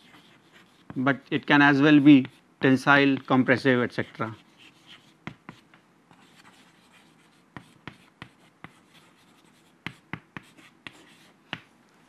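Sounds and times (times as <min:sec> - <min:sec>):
chalk scratching on chalkboard: 0:00.0 - 0:11.6
chalk tapping on board: 0:01.8 - 0:11.7.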